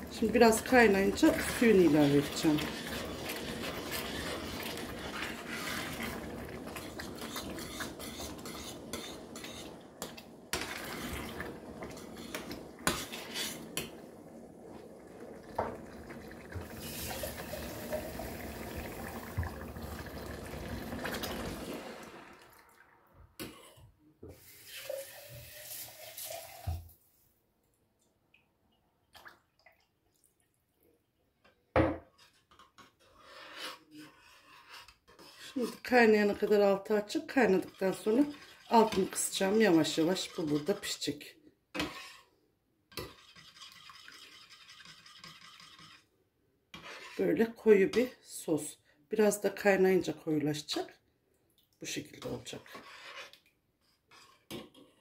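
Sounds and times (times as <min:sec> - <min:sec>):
metal spoon scraping a saucepan: 0:00.0 - 0:14.0, 0:32.1 - 0:48.2, 0:52.1 - 0:55.0
water running: 0:00.0 - 0:23.2, 0:24.6 - 0:27.0.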